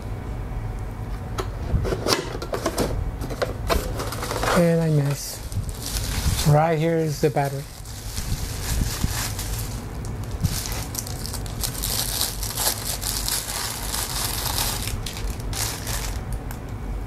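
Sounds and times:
plastic bag crinkling: 4.0 - 16.6
bubble wrap crackling: 4.6 - 16.6.

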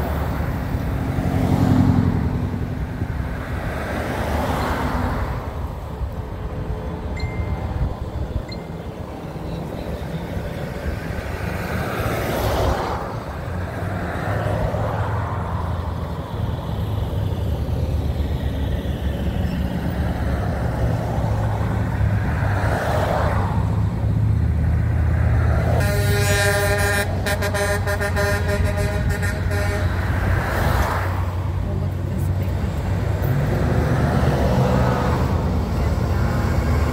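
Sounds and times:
trucks driving past: 0.0 - 36.9
vehicle horn: 25.7 - 30.1.

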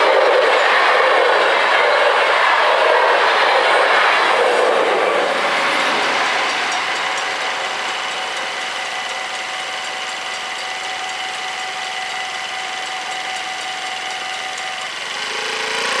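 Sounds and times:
vehicle engine revving: 0.0 - 16.0
level crossing bells ringing: 6.1 - 14.9.

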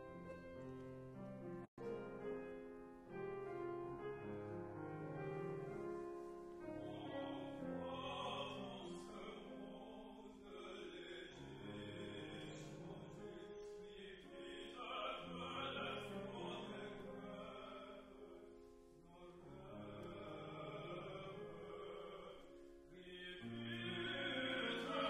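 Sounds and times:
grand piano: 0.0 - 25.0
man singing operatically: 6.8 - 18.5, 19.1 - 25.0.

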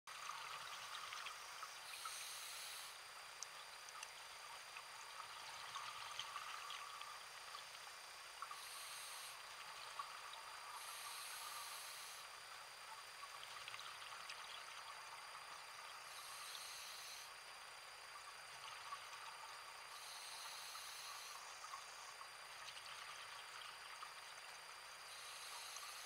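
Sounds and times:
underwater crackle of clicks: 3.3 - 4.9.

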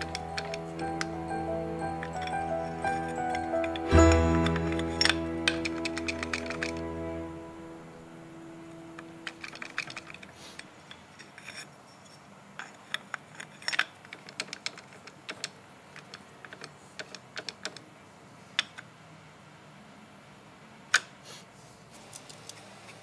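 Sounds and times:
metal tools clinking: 0.0 - 7.0, 9.0 - 11.7.

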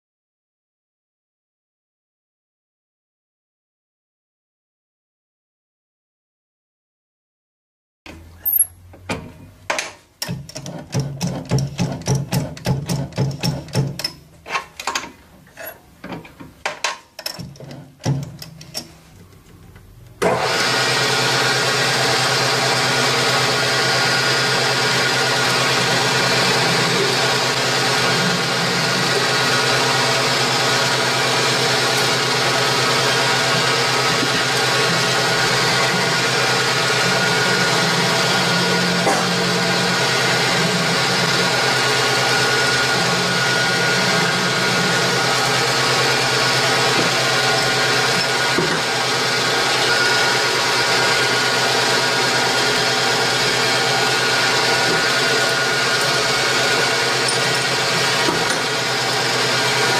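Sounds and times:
machine clicks and knocks: 9.0 - 15.2, 16.1 - 18.9
machine running with steady hum: 20.2 - 59.9.

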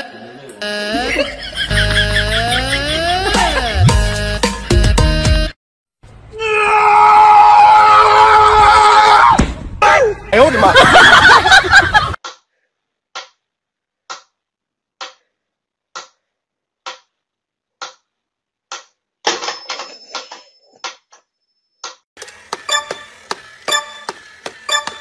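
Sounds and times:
toy clicking and whirring: 22.2 - 25.0
metronome ticking: 22.7 - 25.0.

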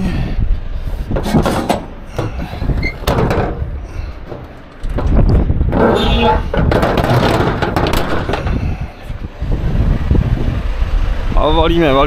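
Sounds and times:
low rumble: 0.0 - 11.4
metal clanks and knocks: 1.1 - 8.9.

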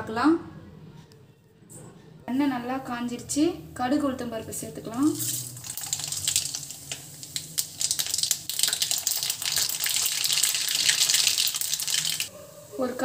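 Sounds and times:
mustard seeds crackling and popping: 5.1 - 12.3
seeds sizzling in hot oil: 5.1 - 13.0.

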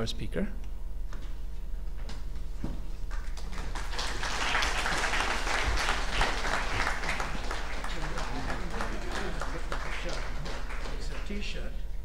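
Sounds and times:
steady low hum: 0.0 - 12.0
audience applause: 3.1 - 11.6.

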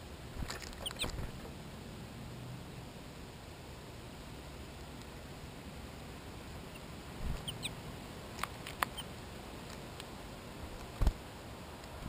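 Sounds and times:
steady hiss: 0.0 - 12.0
beaks pecking seed on feeder: 0.4 - 1.4, 6.7 - 10.1.

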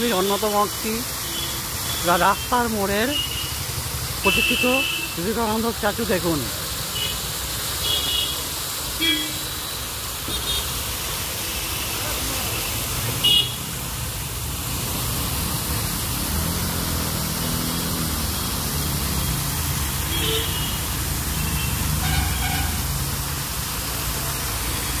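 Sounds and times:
fountain water spray hissing: 0.0 - 25.0
street traffic rumbling: 0.0 - 25.0.

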